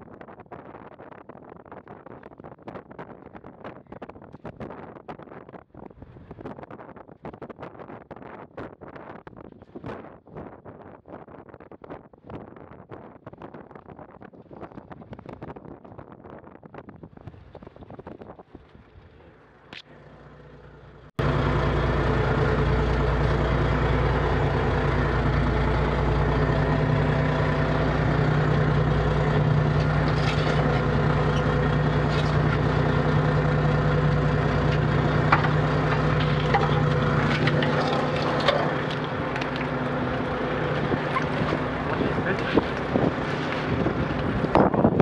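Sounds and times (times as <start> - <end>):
boat machinery droning: 18.8 - 45.0.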